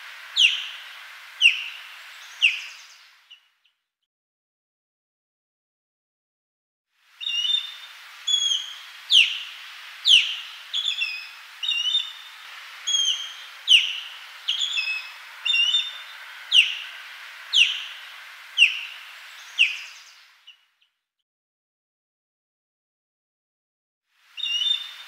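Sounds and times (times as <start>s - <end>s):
osprey whistling calls: 0.0s - 3.5s, 7.2s - 20.6s, 24.4s - 25.0s
steady hiss: 0.0s - 3.6s, 7.0s - 20.7s, 24.1s - 25.0s.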